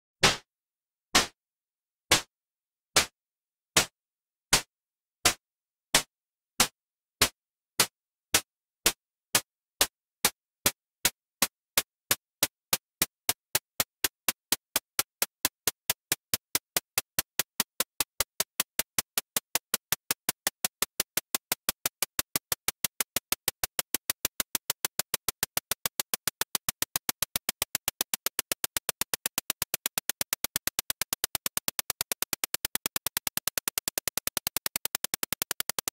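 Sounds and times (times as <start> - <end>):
bomb timer ticking: 12.7 - 35.9.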